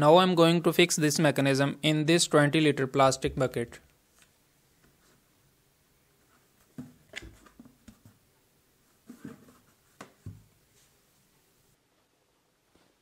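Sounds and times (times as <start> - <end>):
plastic bucket knocks and rubs: 9.1 - 10.5.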